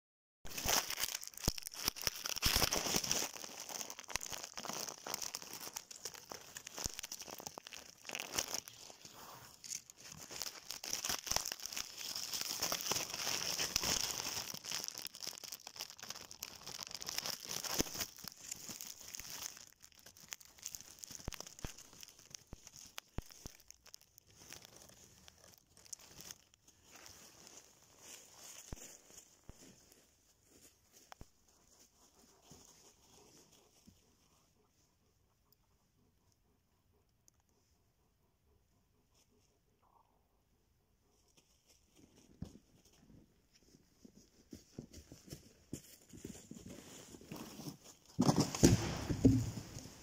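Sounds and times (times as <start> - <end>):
dry leaves rustling and crackling: 0.5 - 31.1, 44.9 - 50.0.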